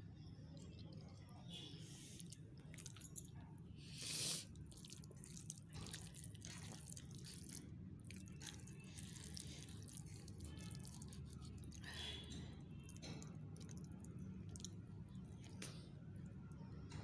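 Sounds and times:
fingers squishing wet rice: 0:02.0 - 0:03.1, 0:03.9 - 0:12.2, 0:12.8 - 0:16.1.

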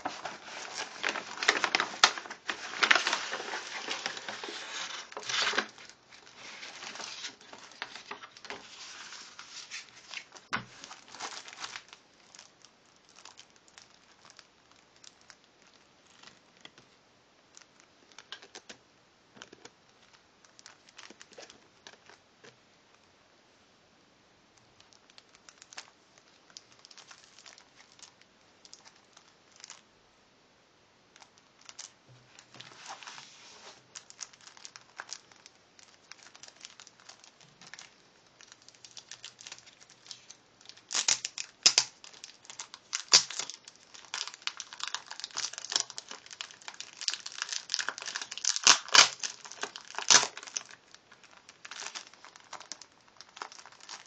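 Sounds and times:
plastic wrapper crinkling: 0:00.0 - 0:22.6, 0:24.6 - 0:29.8, 0:31.1 - 0:54.0.

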